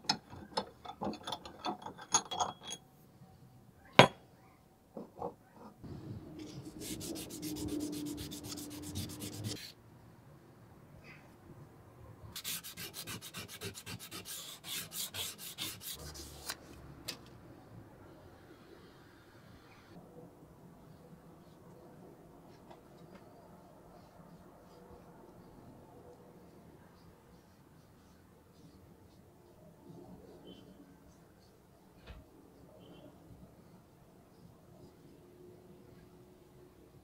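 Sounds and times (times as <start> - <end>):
sandpaper rasping on metal: 6.5 - 9.7, 12.4 - 16.6.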